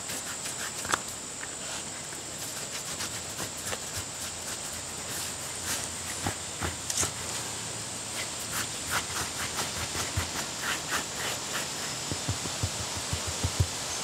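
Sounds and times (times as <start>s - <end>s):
brush rasping through fur: 0.0s - 1.0s, 1.6s - 7.2s, 8.1s - 14.0s
steady hiss: 0.0s - 14.0s
soft low thumps: 12.0s - 13.9s.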